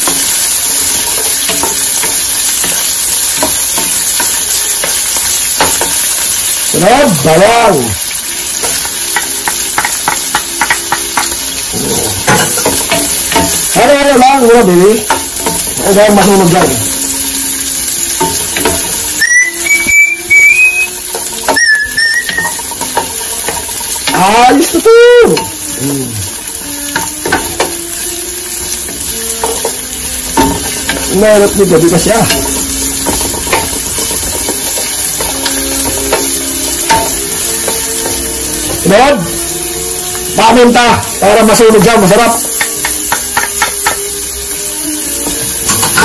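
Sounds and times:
onion sizzling in hot oil: 0:00.0 - 0:46.0
spatula stirring in pan: 0:00.0 - 0:46.0
person whistling: 0:19.2 - 0:22.6.

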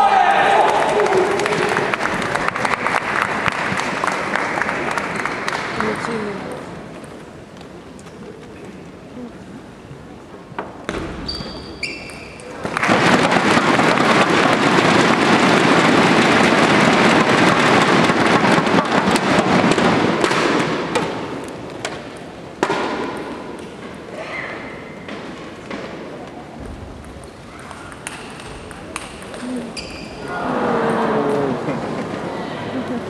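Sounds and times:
crowd cheering: 0:00.0 - 0:06.3, 0:30.2 - 0:33.0
short squeaks: 0:29.8 - 0:30.2.

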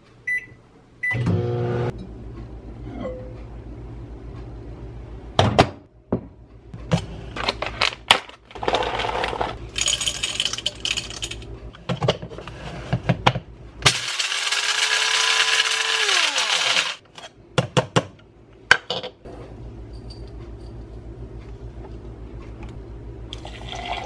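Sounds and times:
electric coffee grinder running: 0:14.0 - 0:17.0.

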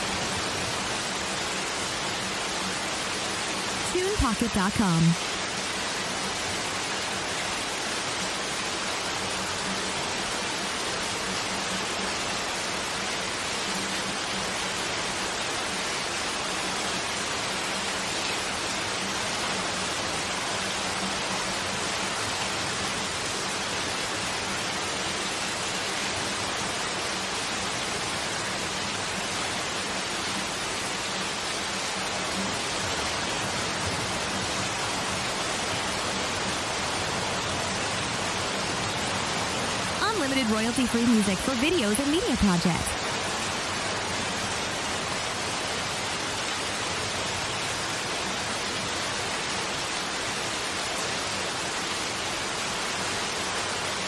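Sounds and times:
rain splashing on tarp: 0:00.0 - 0:04.2, 0:04.8 - 0:40.8, 0:43.0 - 0:54.0.

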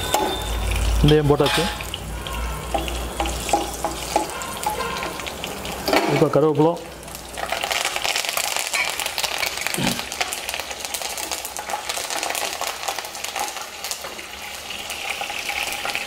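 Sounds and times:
leaves crackling in hot oil: 0:00.0 - 0:16.0.

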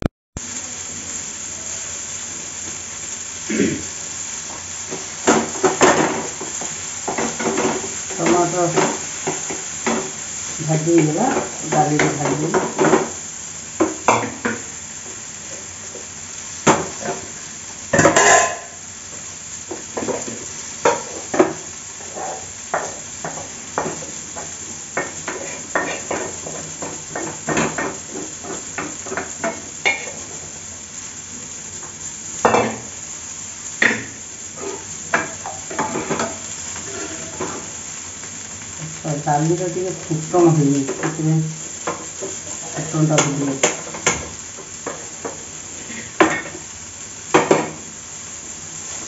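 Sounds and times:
frying sizzle: 0:00.0 - 0:49.0
wooden spatula scraping a pan: 0:18.0 - 0:18.8, 0:19.7 - 0:30.4, 0:34.5 - 0:37.8, 0:41.8 - 0:46.6.

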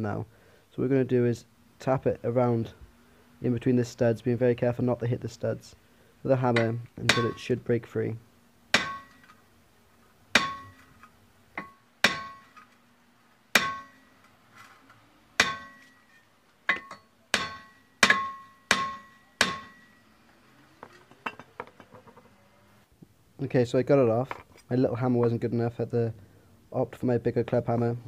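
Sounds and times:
hammer striking metal disc: 0:06.6 - 0:07.4, 0:08.7 - 0:09.4, 0:10.4 - 0:10.9, 0:11.6 - 0:12.6, 0:13.5 - 0:14.2, 0:15.4 - 0:16.1, 0:16.7 - 0:20.0.

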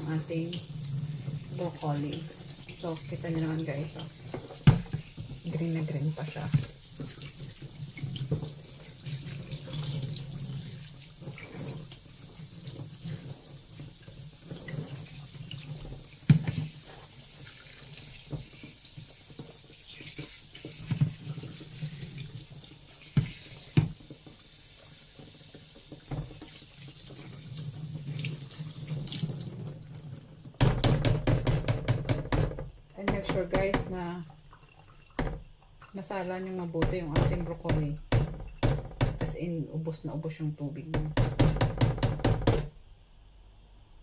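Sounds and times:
tap water running into sink: 0:00.0 - 0:39.4, 0:40.9 - 0:42.8
sharp knocks: 0:30.6 - 0:34.0, 0:36.8 - 0:39.4, 0:40.9 - 0:42.8.

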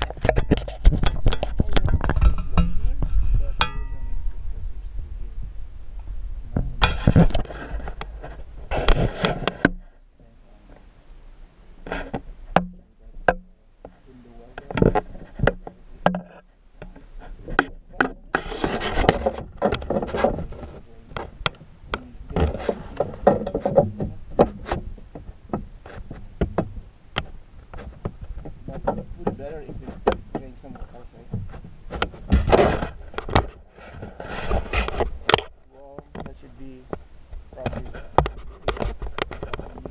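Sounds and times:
microphone handling clicks and rubbing: 0:00.0 - 0:11.0, 0:11.8 - 0:39.9
muffled voices: 0:01.1 - 0:05.6, 0:13.9 - 0:16.4, 0:19.9 - 0:24.8, 0:28.7 - 0:31.4, 0:35.7 - 0:38.1.

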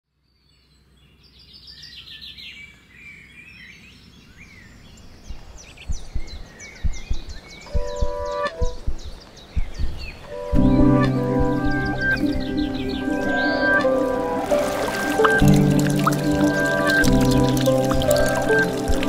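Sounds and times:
birds chirping and trilling: 0:00.2 - 0:19.0
low thuds: 0:05.1 - 0:19.0
music held tone: 0:10.3 - 0:19.0.

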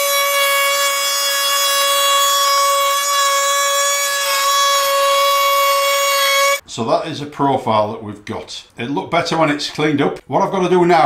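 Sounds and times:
rotary tool high-pitched whine: 0:00.0 - 0:06.6.

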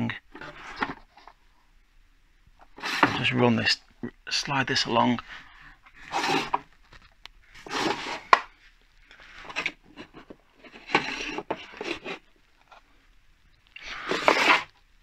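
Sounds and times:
plastic tool scraping metal sheet: 0:02.7 - 0:03.3, 0:06.0 - 0:07.0, 0:07.6 - 0:08.5, 0:09.4 - 0:12.3, 0:13.8 - 0:14.8.

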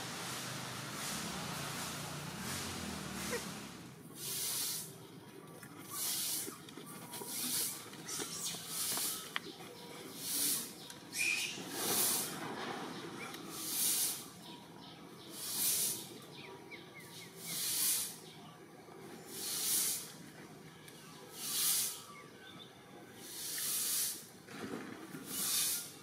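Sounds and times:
swelling hissing noise: 0:00.0 - 0:05.0, 0:05.9 - 0:06.6, 0:07.3 - 0:09.3, 0:10.1 - 0:12.5, 0:13.5 - 0:14.4, 0:15.3 - 0:16.2, 0:17.1 - 0:18.3, 0:19.3 - 0:20.2, 0:21.3 - 0:22.1, 0:23.2 - 0:24.4, 0:25.2 - 0:26.0.

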